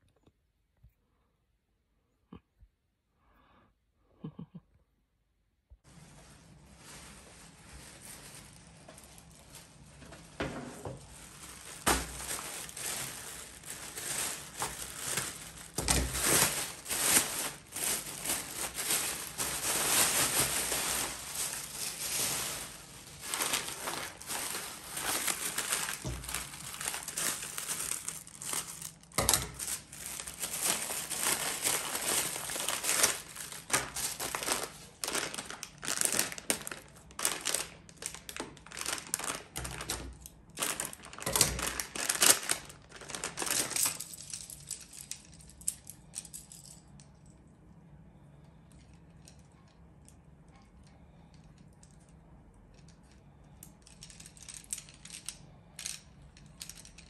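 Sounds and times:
plastic bags crinkling: 0:05.9 - 0:46.9, 0:52.8 - 0:57.0.

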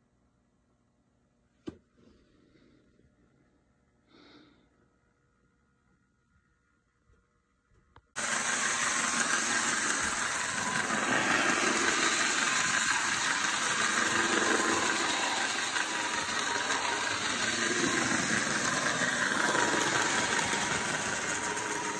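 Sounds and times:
model train motor whirring: 0:08.2 - 0:21.9.

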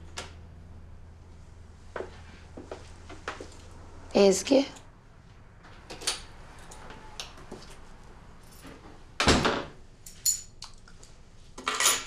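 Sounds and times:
front door shutting with thud: 0:09.2 - 0:09.7.

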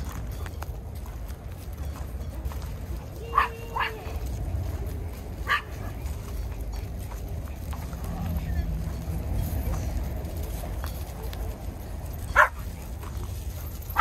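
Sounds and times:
dog barking: 0:03.3 - 0:04.1, 0:05.4 - 0:05.8, 0:12.3 - 0:12.6.

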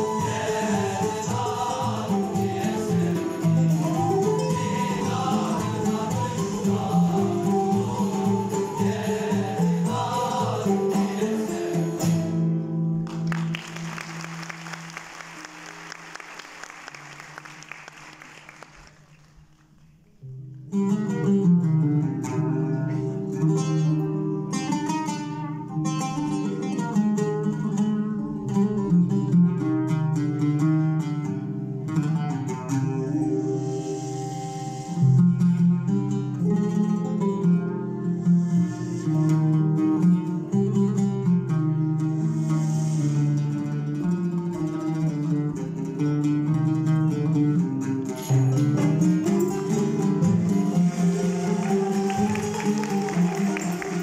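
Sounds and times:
male choir singing: 0:00.0 - 0:12.4, 0:50.3 - 0:54.0
flutes: 0:00.0 - 0:12.8, 0:32.8 - 0:35.4, 0:37.4 - 0:40.8, 0:49.2 - 0:54.0
plucked strings ensemble: 0:00.0 - 0:16.1, 0:20.7 - 0:54.0.

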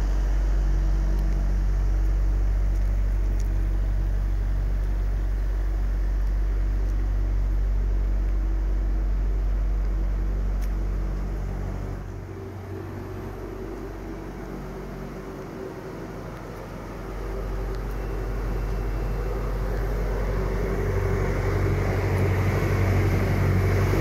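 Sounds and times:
refrigeration unit engine hum: 0:00.0 - 0:24.0.

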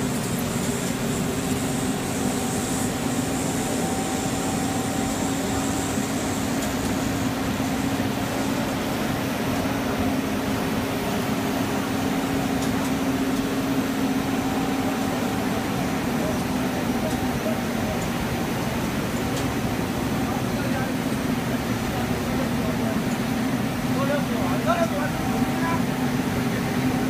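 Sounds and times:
machinery humming: 0:00.0 - 0:27.0
faint high whine: 0:00.6 - 0:07.4.

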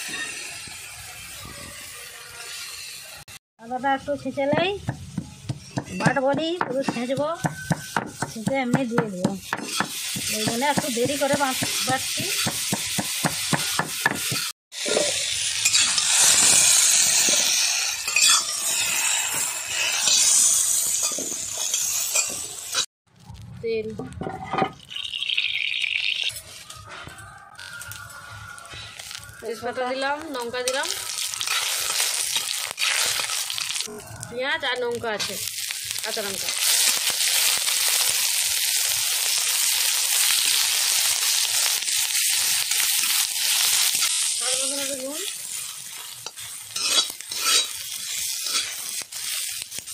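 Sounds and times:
metal spatula scraping a wok: 0:00.0 - 0:03.1, 0:13.9 - 0:22.9, 0:30.4 - 0:34.0, 0:42.9 - 0:49.9
food sizzling in hot oil: 0:00.0 - 0:23.8, 0:24.7 - 0:26.9, 0:27.5 - 0:49.9.

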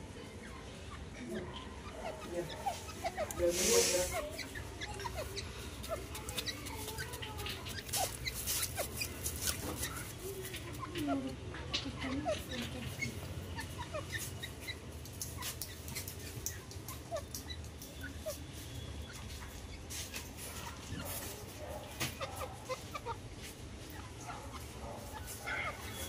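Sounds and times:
bird clucking softly: 0:00.7 - 0:18.4, 0:19.1 - 0:26.0
scratchy clicks on gravel: 0:05.0 - 0:10.8.

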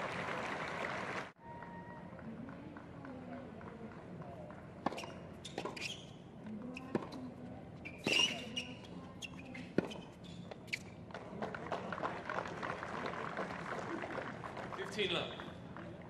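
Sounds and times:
crowd noise: 0:00.0 - 0:04.5
tennis ball bouncing: 0:03.6 - 0:12.0
racket hitting tennis ball: 0:04.8 - 0:05.9, 0:06.9 - 0:07.2.

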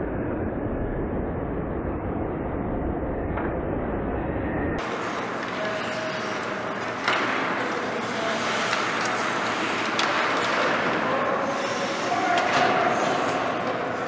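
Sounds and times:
skates scraping ice: 0:04.8 - 0:14.0.

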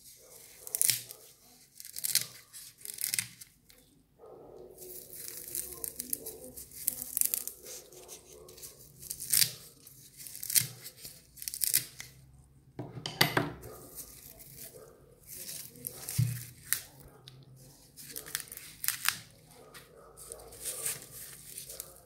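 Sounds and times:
shears snipping coconut husk: 0:00.4 - 0:03.4, 0:04.9 - 0:12.2.

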